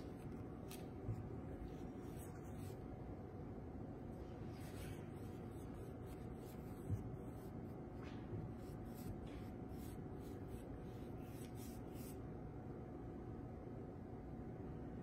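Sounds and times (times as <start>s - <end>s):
paintbrush brushing on canvas: 0.0s - 2.9s, 4.3s - 7.8s, 8.5s - 12.2s
low room hum: 0.0s - 15.0s.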